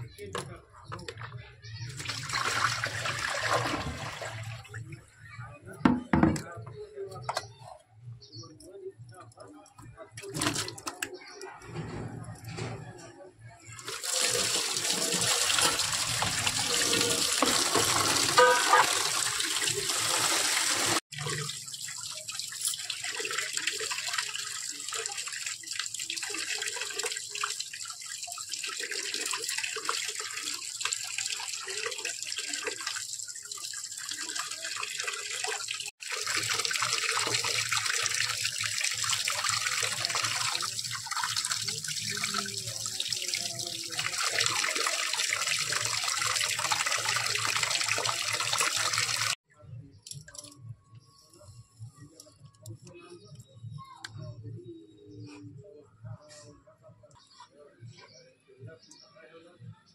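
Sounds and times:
water running and splashing: 1.8s - 4.8s, 13.7s - 49.4s.

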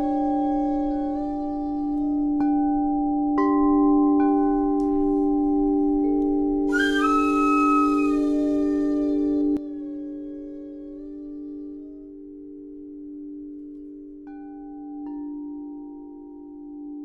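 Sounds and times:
ambient instrumental music: 0.0s - 17.0s
shimmering higher tones: 4.2s - 9.6s.

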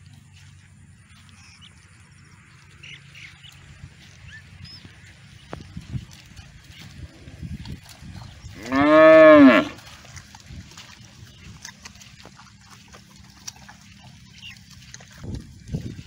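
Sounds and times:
young water buffalo lowing: 6.7s - 10.4s.

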